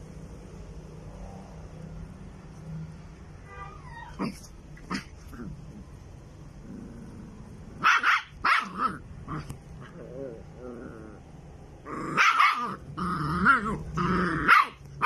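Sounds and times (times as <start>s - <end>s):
dog barking: 7.8s - 9.0s, 12.1s - 12.8s, 14.4s - 14.8s.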